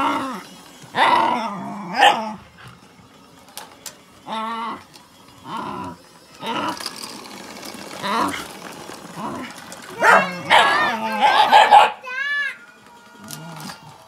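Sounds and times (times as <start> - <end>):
dog barking: 2.0 - 2.2, 10.0 - 12.0.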